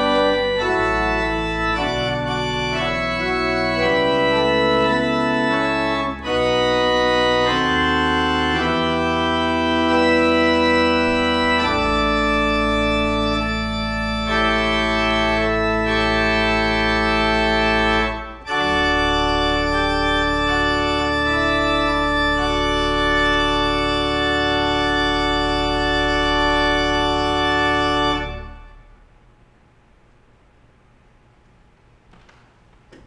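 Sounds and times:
pipe organ chords: 0.0 - 29.2.

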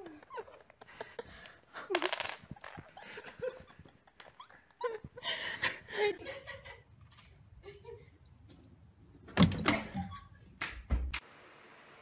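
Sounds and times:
wooden blocks clattering: 1.8 - 3.0
wooden blocks clicking: 1.9 - 2.9.

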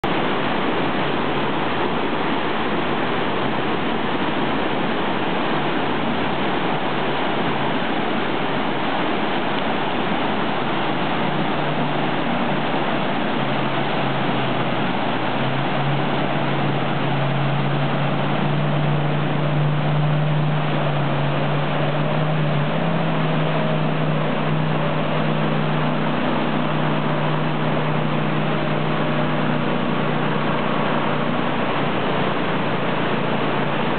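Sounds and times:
jet boat engine hum: 0.0 - 33.9
whitewater rapids rushing: 0.0 - 33.9.

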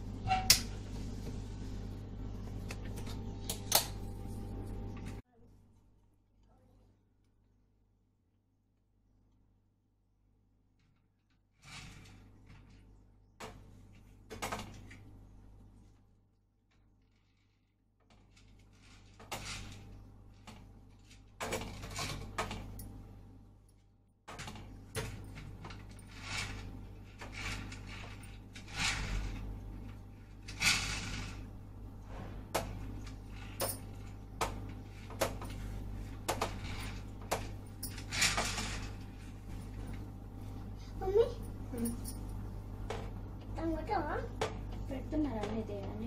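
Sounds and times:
steady low hum: 0.0 - 7.7, 18.7 - 46.0
household objects being handled: 24.3 - 43.5.

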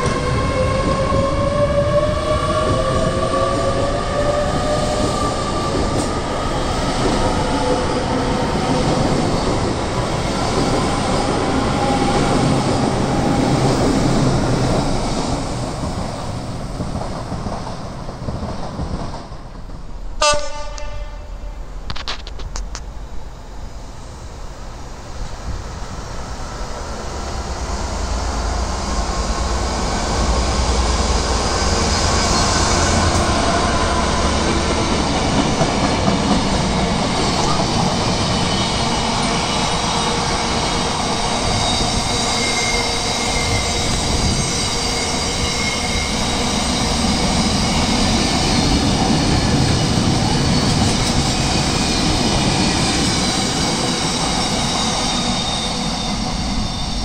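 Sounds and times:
train wheel and rail noise: 0.0 - 57.0
high wheel squeals: 36.5 - 57.0.

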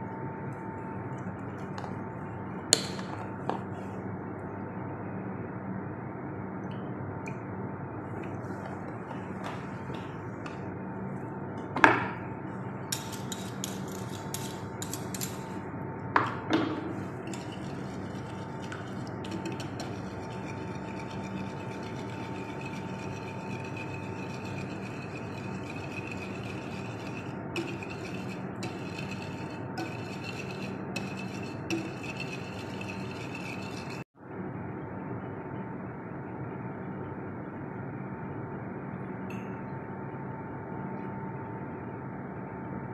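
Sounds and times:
utensil clinking and scraping plate: 12.9 - 15.5, 17.0 - 34.0.

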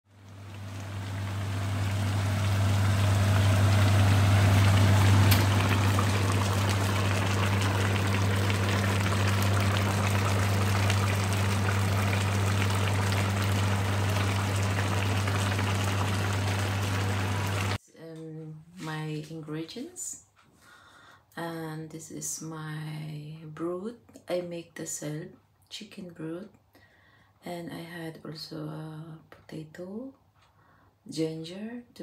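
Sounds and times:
soup boiling and bubbling: 0.1 - 17.8
steady low hum: 0.1 - 17.8.

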